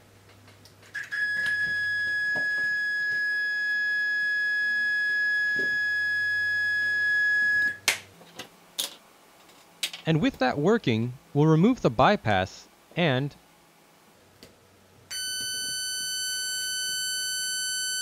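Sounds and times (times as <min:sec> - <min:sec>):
high-pitched sine test tone: 0:01.0 - 0:07.8, 0:15.1 - 0:18.0.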